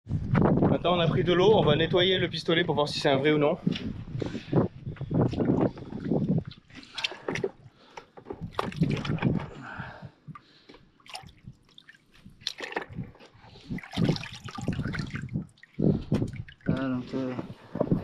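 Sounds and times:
water sloshing in a bucket: 5.2s - 17.4s.

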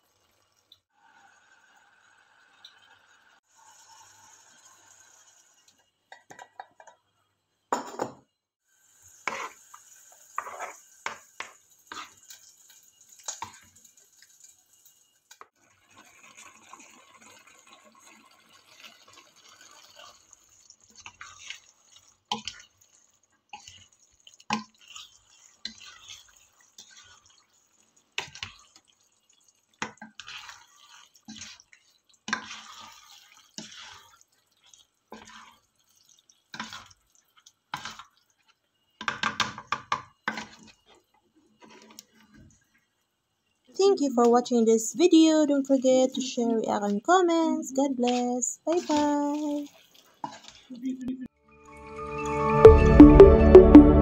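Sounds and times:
sauce simmering with bubbling pops: 8.7s - 44.2s, 47.0s - 50.7s
spatula stirring spaghetti: 9.1s - 50.8s.

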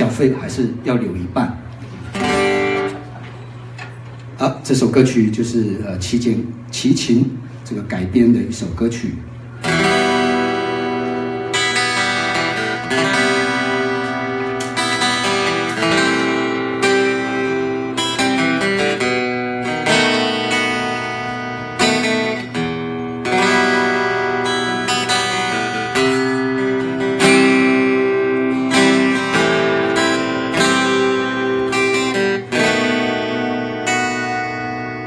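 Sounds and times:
acoustic guitars strummed and picked: 1.6s - 4.4s, 9.5s - 35.0s.

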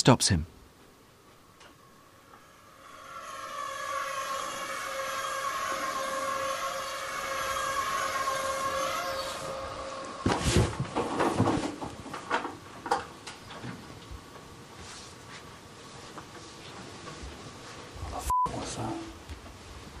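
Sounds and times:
droning chord: 1.8s - 10.2s.

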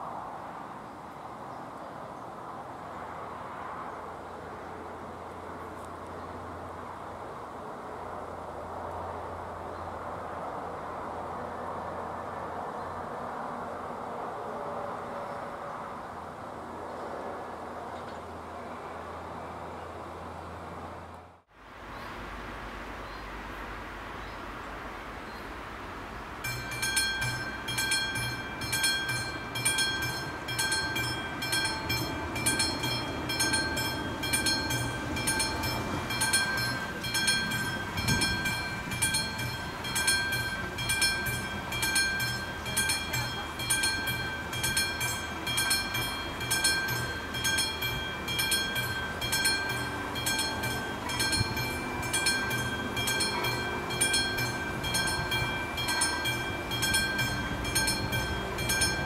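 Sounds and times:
level crossing warning bell ringing: 26.4s - 59.0s.

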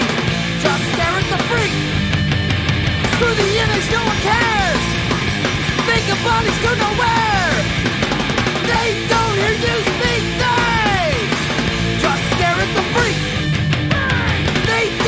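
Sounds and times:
hardcore punk band playing: 0.0s - 15.0s.

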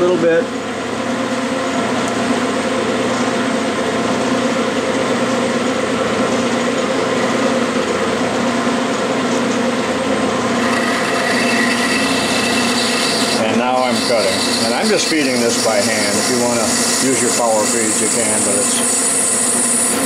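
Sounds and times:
metal lathe humming: 0.0s - 20.0s.

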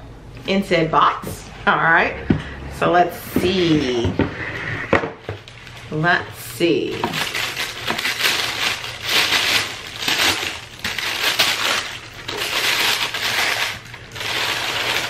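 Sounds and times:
packing paper rustling: 5.2s - 15.0s.

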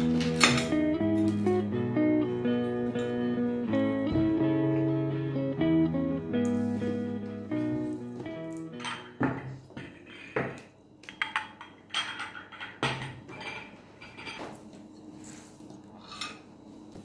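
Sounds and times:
crockery and cutlery clinking: 8.7s - 14.7s, 16.0s - 16.5s.

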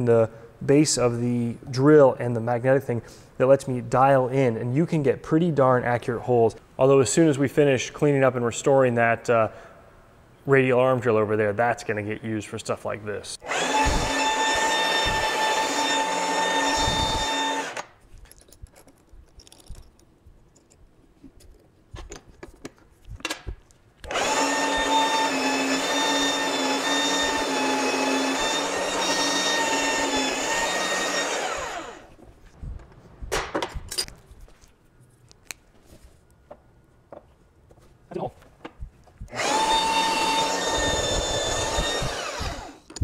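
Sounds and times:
drill motor whining: 13.4s - 17.9s, 24.0s - 32.1s, 39.3s - 42.9s
drill bit drilling into steel: 13.5s - 17.8s, 24.1s - 32.1s, 39.4s - 42.8s.

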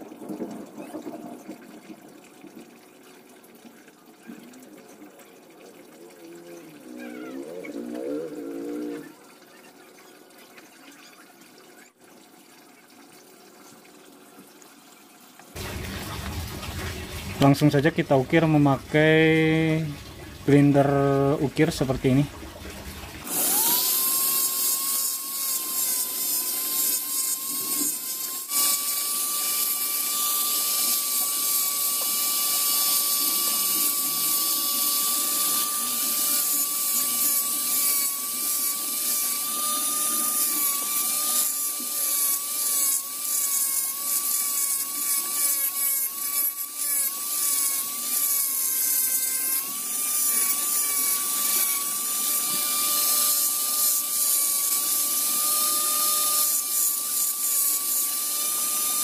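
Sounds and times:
rotary grinder whining: 15.6s - 59.0s.

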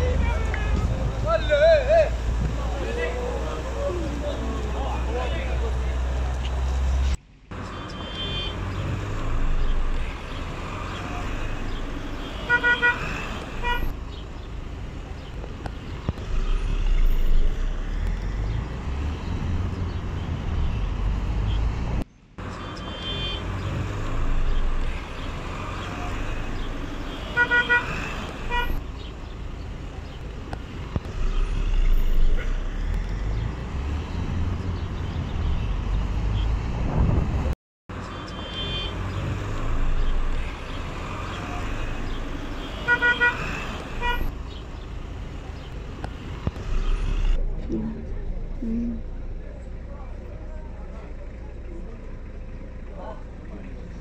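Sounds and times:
street traffic: 0.0s - 54.0s
car horn toots: 7.9s - 8.8s, 12.1s - 13.9s, 22.8s - 23.8s, 27.1s - 28.8s, 38.1s - 39.2s, 42.5s - 44.3s.

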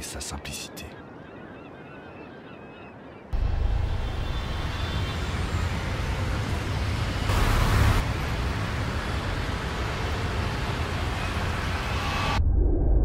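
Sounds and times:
low rumble of road vehicles: 3.4s - 12.4s
vehicle rushing past: 3.4s - 12.4s.

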